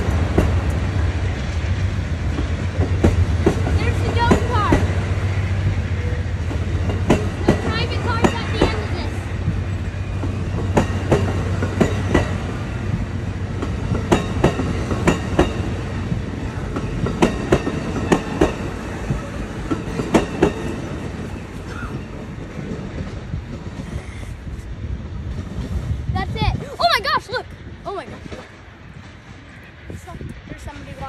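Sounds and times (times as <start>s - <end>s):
train cars rumbling past: 0.0s - 31.0s
wheels clicking over rail joints: 2.2s - 5.1s, 6.4s - 24.0s.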